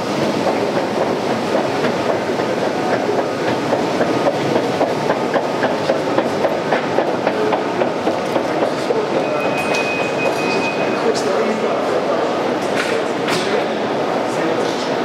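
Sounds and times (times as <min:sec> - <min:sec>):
escalator clicking and clattering: 0:00.1 - 0:10.5.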